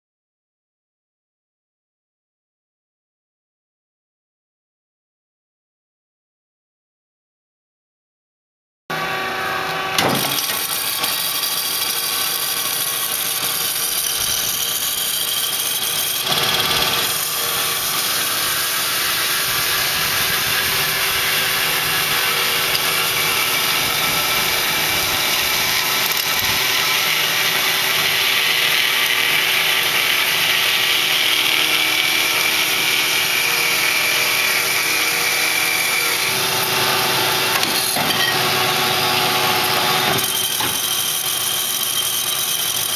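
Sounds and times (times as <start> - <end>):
bandsaw cutting metal: 8.9 - 42.9
constant machine hum: 8.9 - 42.9.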